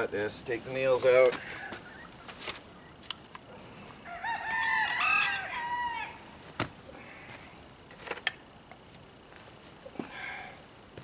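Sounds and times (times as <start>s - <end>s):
rooster crowing: 4.0s - 6.2s.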